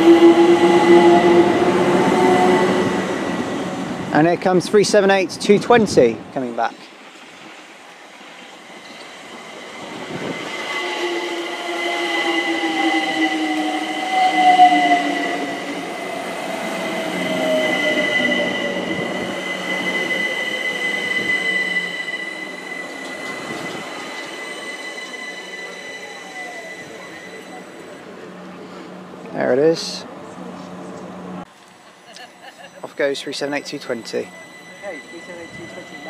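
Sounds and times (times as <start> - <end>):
electric train braking to a stop: 0.0 - 4.3, 8.4 - 30.0, 31.8 - 36.0
steady high-pitched tone: 8.6 - 28.4, 32.2 - 36.0.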